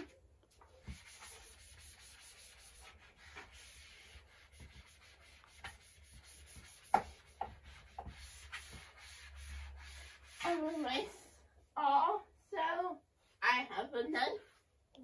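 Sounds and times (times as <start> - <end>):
chalk scratching on chalkboard: 0.6 - 11.4.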